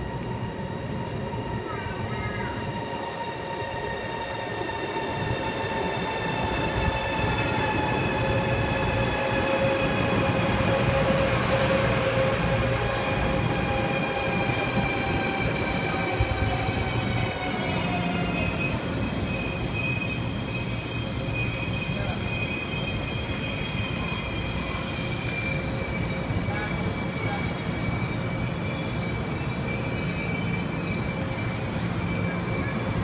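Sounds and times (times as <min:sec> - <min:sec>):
train rumble: 0:00.0 - 0:20.0.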